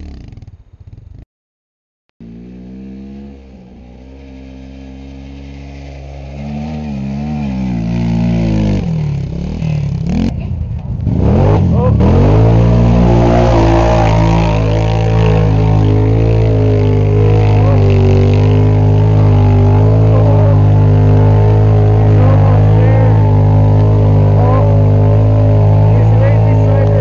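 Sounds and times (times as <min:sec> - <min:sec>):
engine running at high revs: 0:02.2 - 0:27.0.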